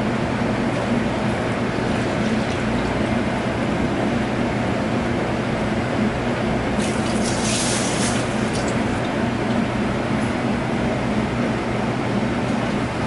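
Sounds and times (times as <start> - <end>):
milk pouring into plastic jug: 6.8 - 9.1.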